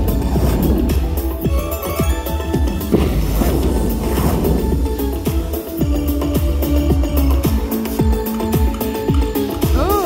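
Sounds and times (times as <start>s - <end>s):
slot machine electronic music: 0.0s - 10.0s
sharp hit: 2.7s - 5.6s.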